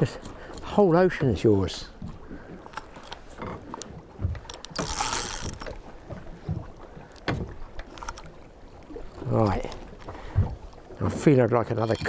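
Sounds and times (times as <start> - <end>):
fishing reel clicks and knocks: 4.5 - 5.7.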